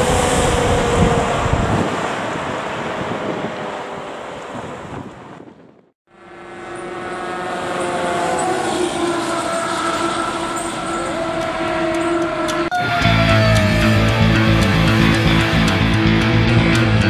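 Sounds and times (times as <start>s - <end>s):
fire truck air horns: 6.1s - 15.5s.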